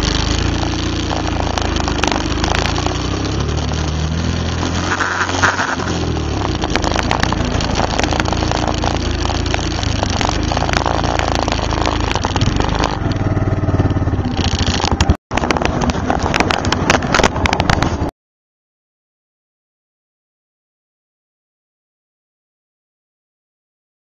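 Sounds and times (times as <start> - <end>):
atv engine running: 0.0 - 18.1
stones crunching under tyres: 0.0 - 18.1.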